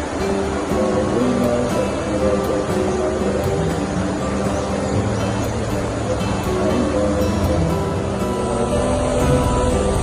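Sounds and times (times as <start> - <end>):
music with held notes: 0.0 - 10.0
steady rushing noise: 0.0 - 10.0.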